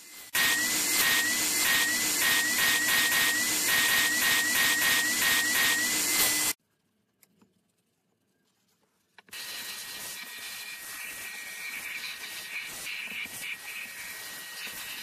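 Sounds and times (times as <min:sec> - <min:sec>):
wet-dry vacuum whining: 0:00.0 - 0:06.6.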